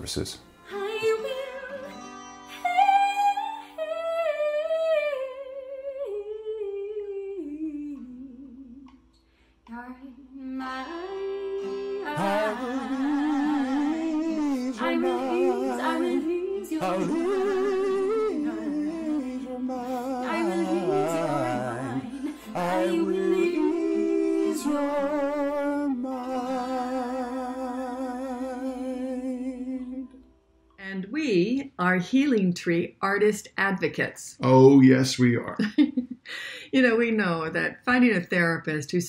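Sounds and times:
acoustic guitar: 0.4s - 3.8s, 7.8s - 30.9s
woman singing a slow song: 0.6s - 9.1s, 9.7s - 27.6s.

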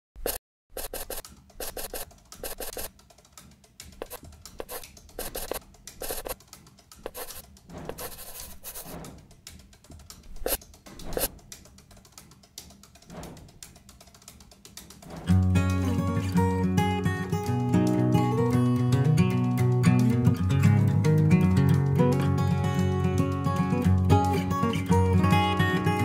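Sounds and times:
pen scratching on paper: 0.2s - 2.9s, 4.0s - 6.4s, 7.0s - 9.2s, 10.3s - 11.4s.

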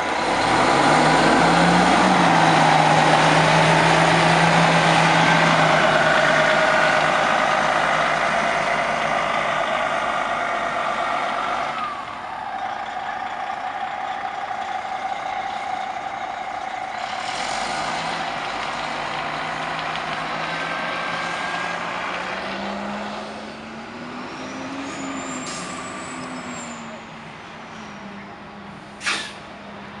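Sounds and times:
diesel coach engine driving off: 0.0s - 30.0s
air brakes hissing: 24.8s - 26.8s, 28.8s - 29.5s.

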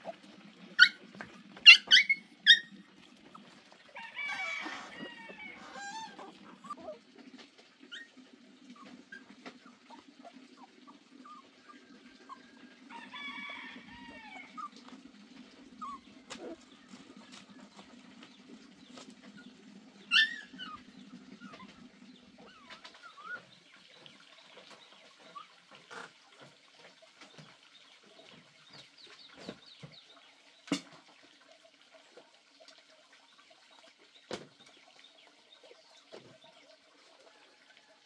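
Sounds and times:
dog yelping: 0.8s - 2.8s, 4.3s - 7.0s, 20.1s - 21.7s.

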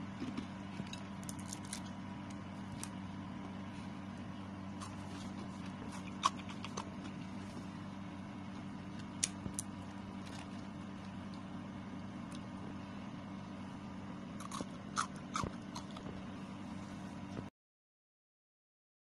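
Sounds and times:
steady low hum: 0.0s - 17.5s
crispy chips snapping: 0.9s - 3.0s, 4.7s - 7.2s, 9.0s - 11.4s.

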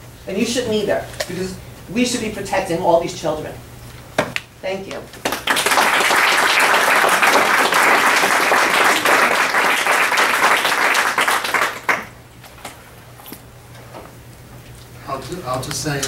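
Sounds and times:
audience applauding: 5.2s - 12.2s.

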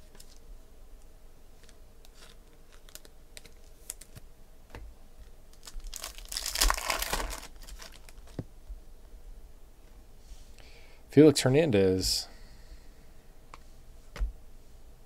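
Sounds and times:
foil wrapper crinkling and tearing: 1.6s - 4.2s, 5.5s - 8.4s.

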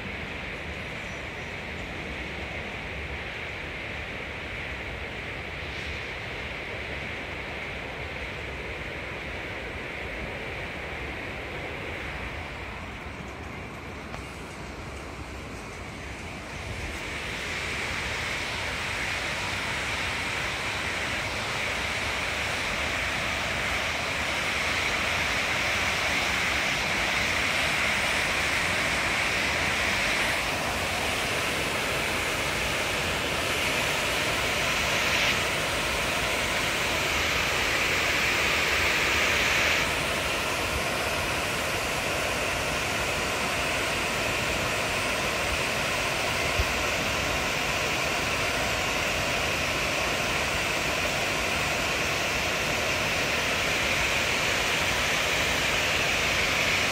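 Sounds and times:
water rushing over weir: 13.8s - 56.9s.

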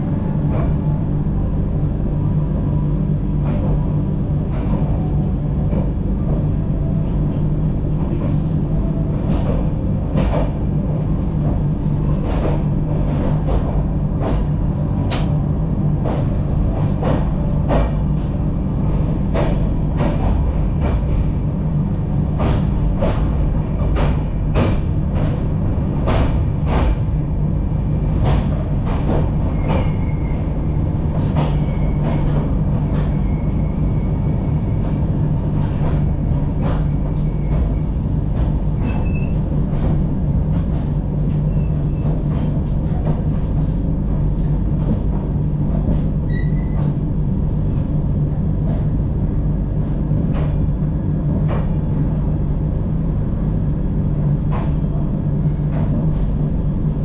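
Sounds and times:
low running hum: 0.0s - 57.0s
faint wheel squeal: 46.3s - 46.8s.

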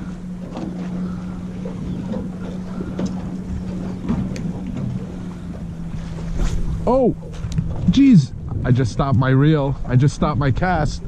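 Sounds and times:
boat engine humming: 0.0s - 11.0s
wind on microphone: 0.0s - 11.0s.

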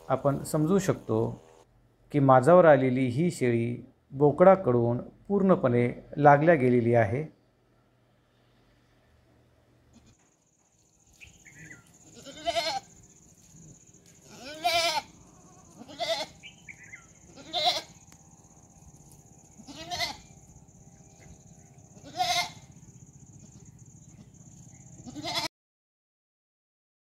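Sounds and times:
goats bleating: 11.5s - 13.0s, 14.1s - 18.0s, 19.5s - 20.3s, 22.0s - 22.7s, 25.0s - 25.5s.

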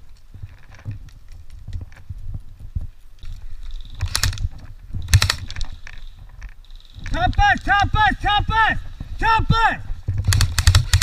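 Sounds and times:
airsoft rifle bursts: 3.2s - 8.2s, 10.2s - 11.0s.

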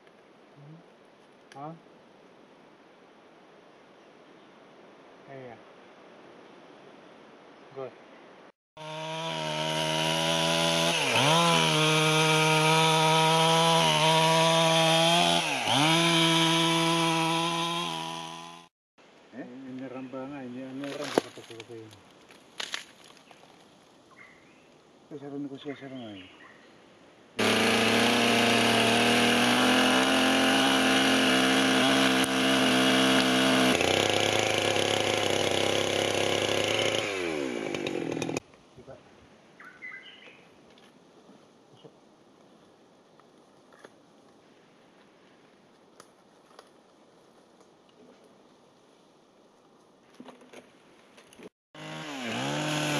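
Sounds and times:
chainsaw cutting log: 8.8s - 18.7s, 27.4s - 38.4s, 51.8s - 52.9s.

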